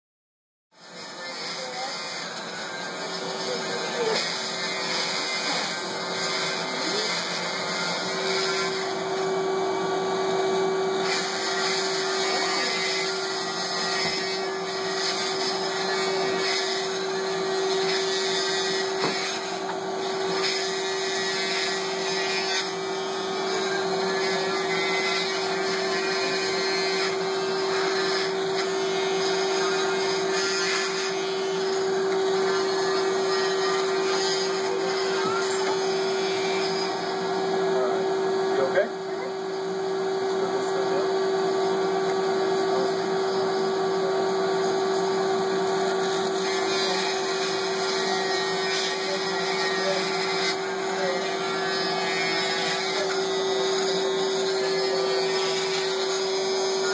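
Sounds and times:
cast saw humming: 0:00.8 - 0:56.9.

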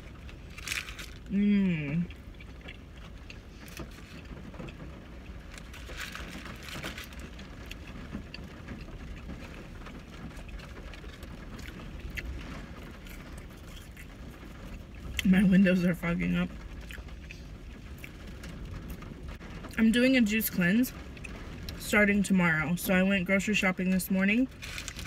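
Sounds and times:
close-up chewing: 0:00.0 - 0:15.3, 0:16.7 - 0:19.1, 0:24.6 - 0:25.0
car interior rumble: 0:00.0 - 0:25.0.

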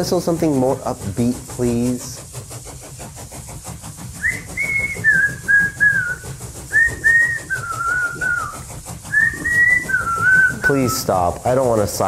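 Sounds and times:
person whistling a tune: 0:04.2 - 0:11.2.

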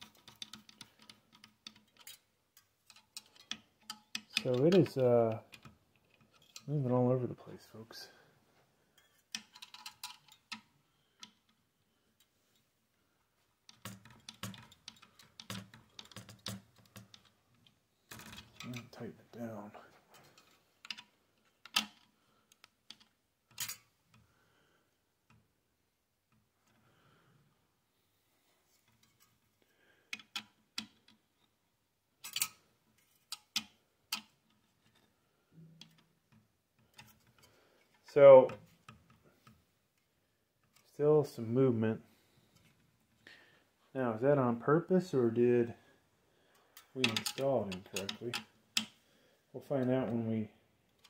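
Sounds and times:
screwdriver clicking on metal screws: 0:02.8 - 0:04.8.

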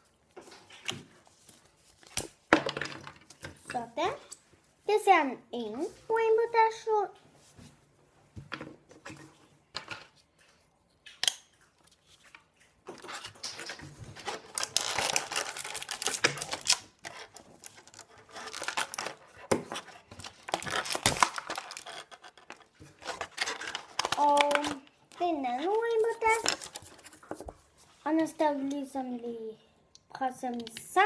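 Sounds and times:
plastic packaging crinkling: 0:12.9 - 0:27.6
plastic toy pieces clicking: 0:20.5 - 0:24.9.

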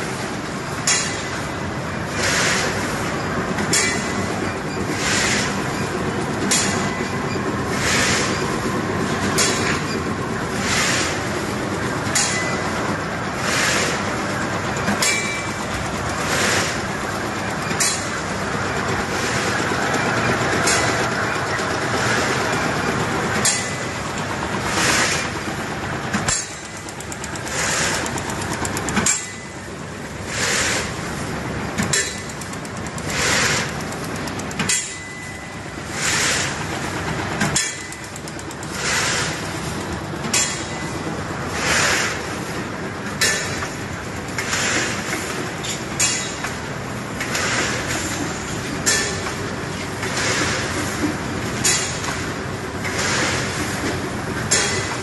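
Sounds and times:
packing machine running: 0:00.0 - 0:55.0
sharp mechanical click: 0:26.1 - 0:29.5, 0:31.8 - 0:35.3, 0:37.4 - 0:40.8.

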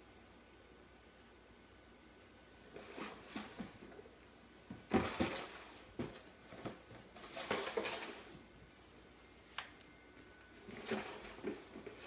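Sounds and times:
cardboard box scraping on tile: 0:02.7 - 0:03.8, 0:10.6 - 0:12.0.

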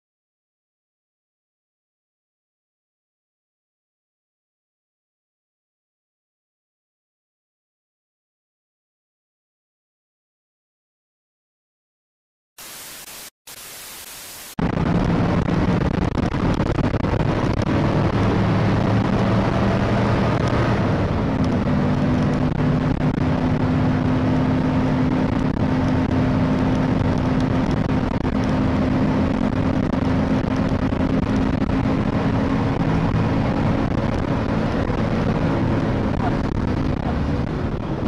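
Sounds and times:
tv static: 0:12.6 - 0:14.8
road noise: 0:12.6 - 0:38.0
vehicle engine running: 0:14.6 - 0:38.0.

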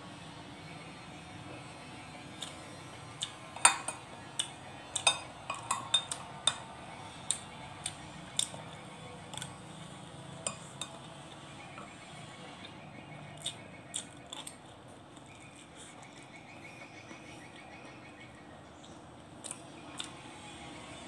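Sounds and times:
metal spoon clinking on a dish: 0:03.6 - 0:06.7, 0:10.4 - 0:11.1.

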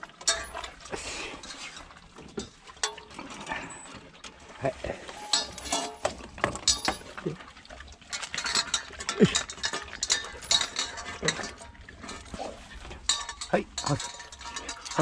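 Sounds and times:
metal clinking and rattling: 0:00.0 - 0:15.0.

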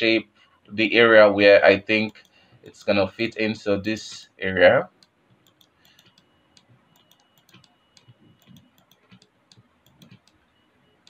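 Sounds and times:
computer mouse clicking: 0:02.0 - 0:02.8, 0:05.0 - 0:10.5.

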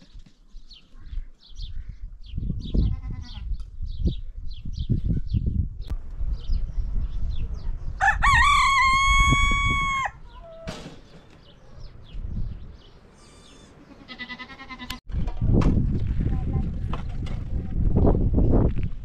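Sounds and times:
rooster crowing: 0:08.0 - 0:10.2.

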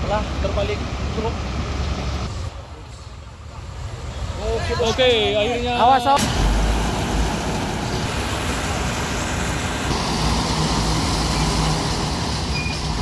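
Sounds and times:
roadside traffic: 0:00.0 - 0:13.0
truck engine: 0:05.9 - 0:13.0
low engine hum: 0:06.2 - 0:13.0.

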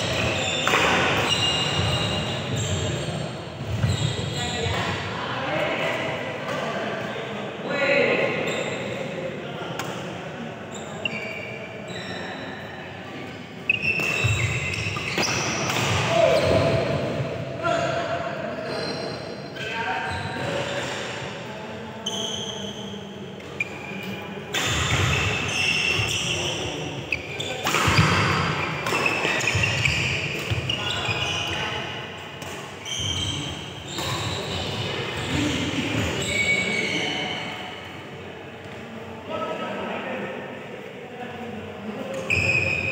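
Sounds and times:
shoes squeaking on court: 0:00.0 - 0:05.0, 0:10.7 - 0:12.8, 0:13.6 - 0:16.8, 0:22.0 - 0:31.7, 0:32.8 - 0:37.5, 0:42.2 - 0:42.9
racket hitting shuttlecock: 0:00.2 - 0:01.3, 0:27.6 - 0:30.8.

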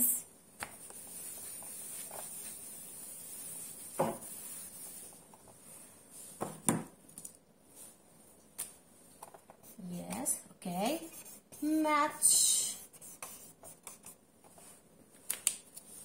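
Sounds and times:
eraser scrubbing whiteboard: 0:00.8 - 0:06.3, 0:10.9 - 0:14.8.

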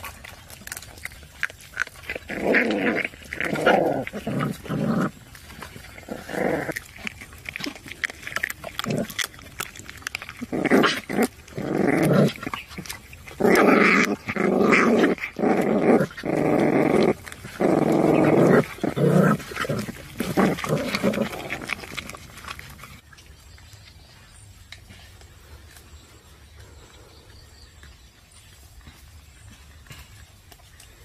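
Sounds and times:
puppies whining: 0:00.0 - 0:23.0.

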